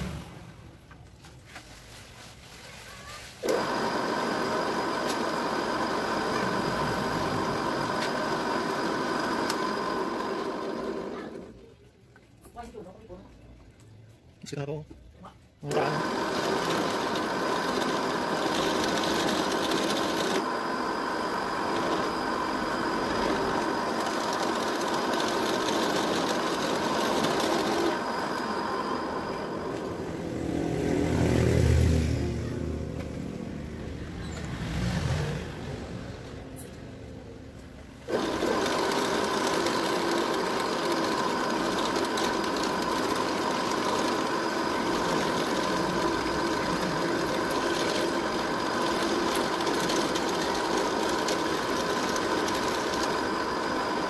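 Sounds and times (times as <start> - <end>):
drill bit drilling plastic: 3.4 - 11.5, 15.6 - 30.0, 38.1 - 54.0
drill press motor running: 3.4 - 11.6, 15.6 - 30.4, 38.0 - 54.0.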